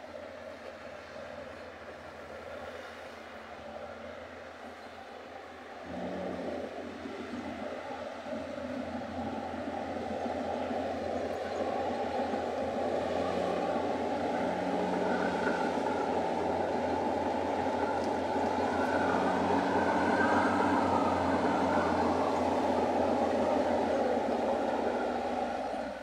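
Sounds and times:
heavy diesel engines under load: 0:00.0 - 0:26.0.

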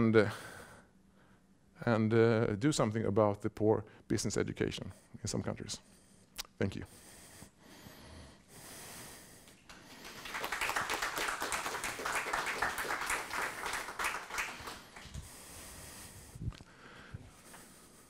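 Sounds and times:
audience applauding: 0:09.5 - 0:15.2.

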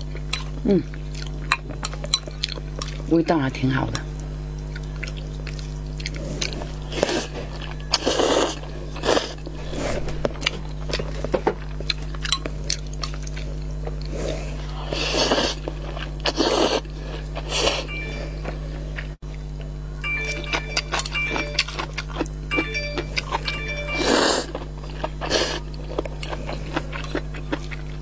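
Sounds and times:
wet chewing: 0:00.0 - 0:03.1, 0:04.2 - 0:19.1, 0:20.5 - 0:28.0
steady low hum: 0:00.0 - 0:28.0
slurping noodles: 0:14.0 - 0:17.9, 0:25.1 - 0:25.7.

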